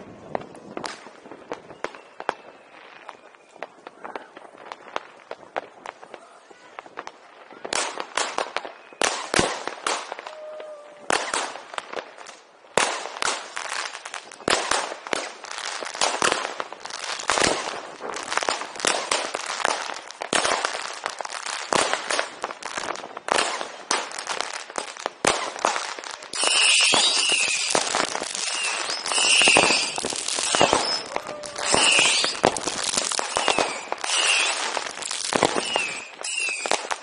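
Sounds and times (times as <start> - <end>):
firecracker bangs and crackles: 0.0 - 37.0
firework whistles: 1.4 - 4.3, 8.4 - 11.5, 25.2 - 37.0.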